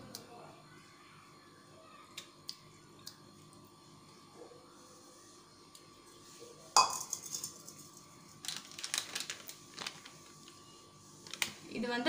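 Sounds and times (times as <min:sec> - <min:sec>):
clink against metal bowl: 0:06.8 - 0:07.8.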